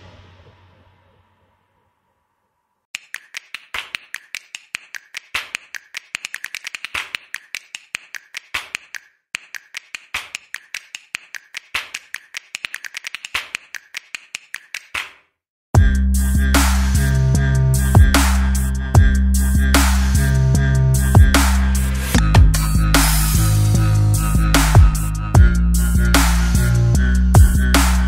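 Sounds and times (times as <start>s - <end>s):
sharp clicks or taps: 3.0s - 15.2s.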